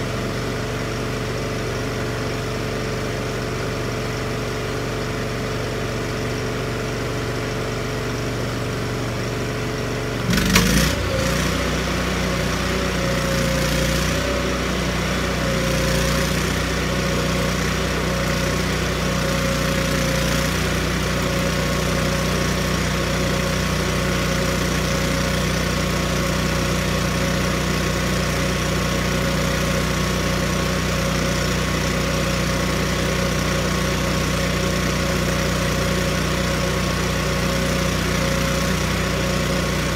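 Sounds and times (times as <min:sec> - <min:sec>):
welder engine running: 0:00.0 - 0:39.9.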